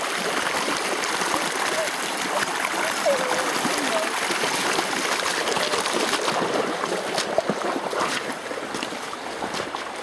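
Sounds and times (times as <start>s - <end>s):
river water over shingle: 0.0s - 10.0s.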